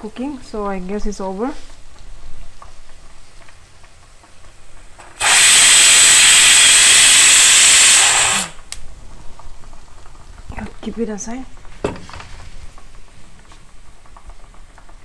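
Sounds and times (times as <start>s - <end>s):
pressure cooker steam hiss: 5.0s - 8.7s.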